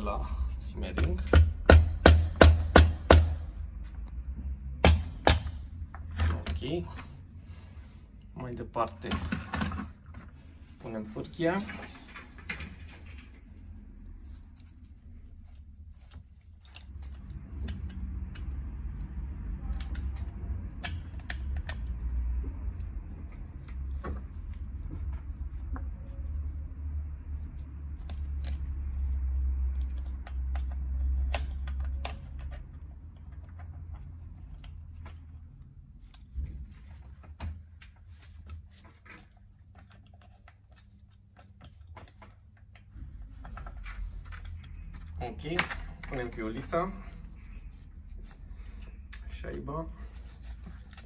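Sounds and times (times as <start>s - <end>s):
metal parts clicking and tapping: 19.7s - 21.9s, 29.6s - 35.2s.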